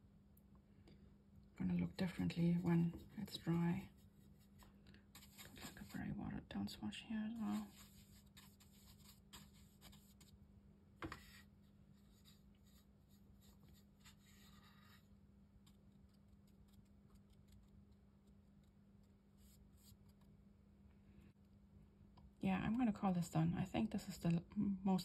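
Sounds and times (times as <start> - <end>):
steady low hum: 0.0 - 25.0
brush scratching on paper: 2.0 - 6.2, 7.3 - 10.4, 11.0 - 17.7, 19.4 - 20.3.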